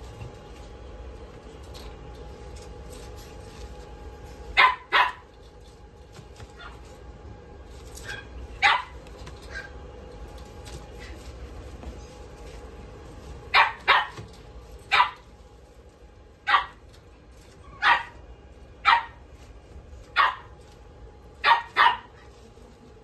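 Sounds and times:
dog barking: 4.6 - 5.3, 8.0 - 9.7, 13.5 - 14.3, 14.9 - 15.3, 16.5 - 16.8, 17.8 - 18.2, 18.8 - 19.2, 20.1 - 20.5, 21.4 - 22.2.

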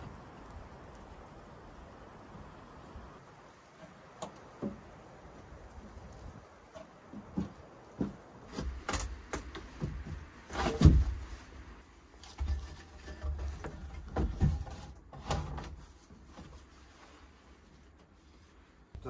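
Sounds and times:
knocks and thuds: 7.2 - 11.3.

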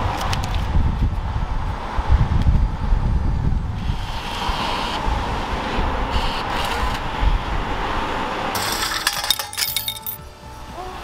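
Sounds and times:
coins clattering into metal cup: 8.6 - 10.2.

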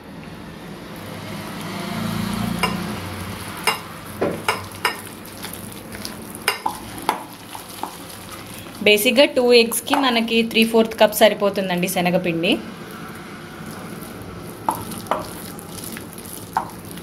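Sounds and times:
hand squishing wet mixture: 4.4 - 10.2, 12.8 - 17.0.

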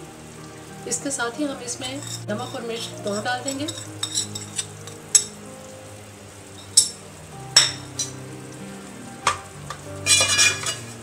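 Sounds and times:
frying sizzle: 0.0 - 11.0
soft background music: 0.0 - 11.0
spoon clinking against metal pot: 1.9 - 5.4, 6.6 - 7.0, 7.6 - 8.2, 9.3 - 10.9.

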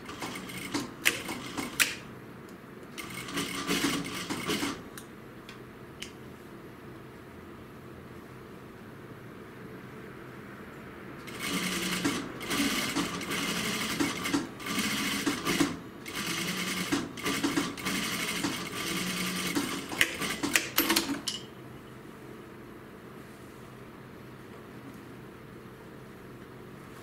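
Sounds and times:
sewing machine stitching: 0.0 - 2.0, 3.0 - 4.8, 11.3 - 21.2.

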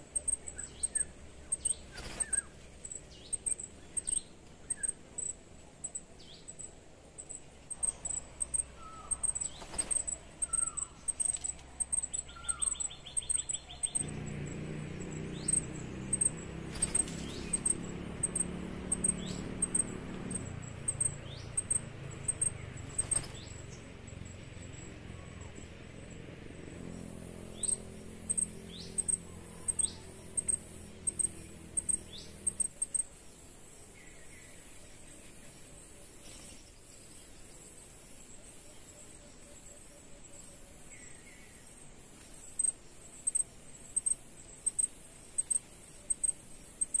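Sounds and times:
low droning hum: 0.0 - 32.8
high thin bird chirp: 0.1 - 23.6.

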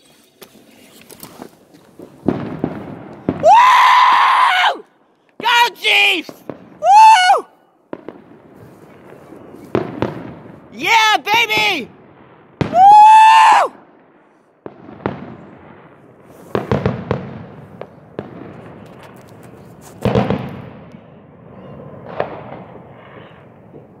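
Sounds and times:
firecracker bangs echoing: 2.0 - 3.6, 5.4 - 7.0, 7.9 - 24.0
man whooping shout: 3.4 - 4.8, 5.4 - 7.5, 10.8 - 11.9, 12.7 - 13.7.

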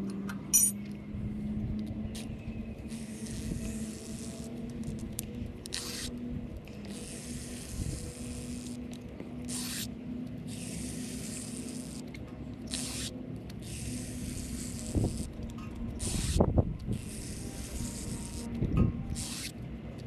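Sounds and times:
hand pump hissing strokes: 2.9 - 5.0, 5.6 - 6.2, 6.8 - 8.8, 9.4 - 19.6.

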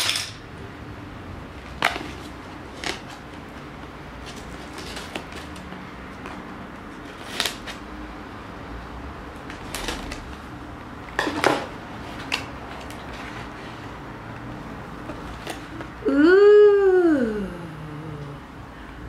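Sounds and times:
scissors cutting packing tape: 7.1 - 7.8, 9.5 - 10.3.

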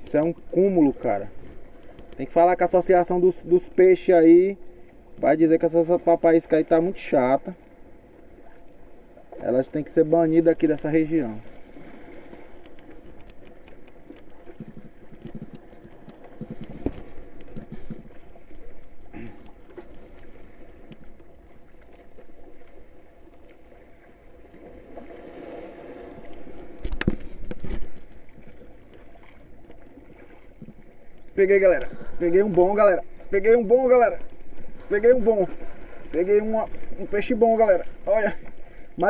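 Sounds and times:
water lapping and sloshing: 0.0 - 39.0.

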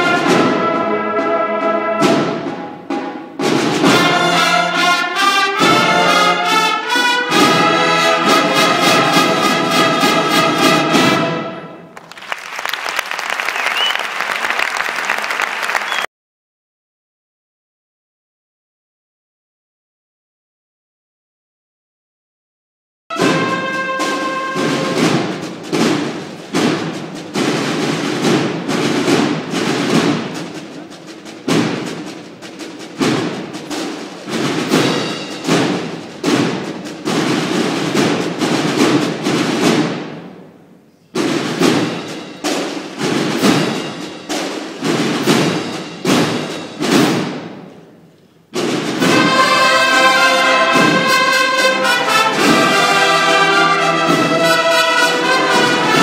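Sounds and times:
drums playing march pattern: 0.0 - 11.9, 23.1 - 56.0
brass section playing: 0.0 - 12.0, 23.1 - 26.0, 49.0 - 56.0.

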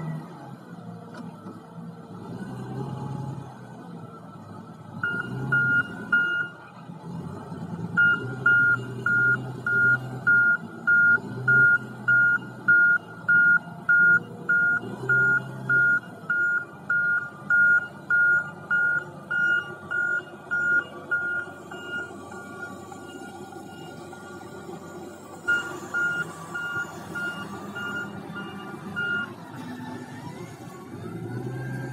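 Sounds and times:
diesel engine: 0.0 - 31.9
vehicle warning beeper: 5.0 - 6.6, 8.0 - 24.6, 25.4 - 29.4.

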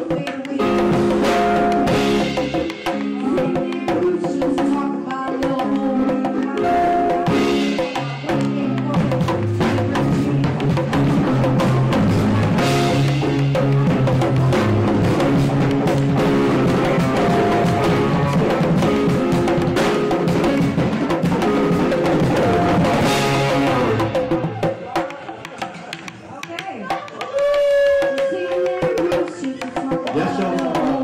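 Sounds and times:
keyboard chords: 0.0 - 27.2
drum beat: 0.0 - 31.0
low bass notes: 6.7 - 24.7.

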